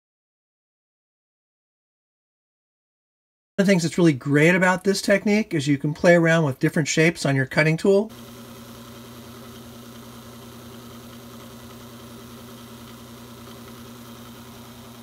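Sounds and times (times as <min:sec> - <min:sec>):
lathe motor hum: 0:08.1 - 0:15.0.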